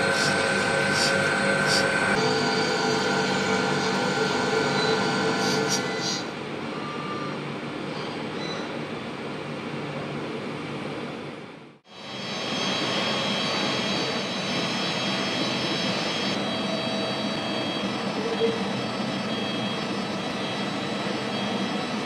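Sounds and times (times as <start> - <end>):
high whining tones: 0.0 - 7.4
workshop machinery drone: 0.0 - 22.0.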